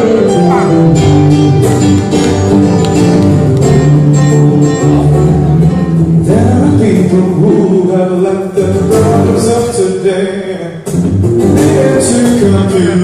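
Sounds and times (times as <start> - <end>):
person singing: 0.0 - 1.4, 6.2 - 13.0
acoustic guitar playing: 0.0 - 13.0.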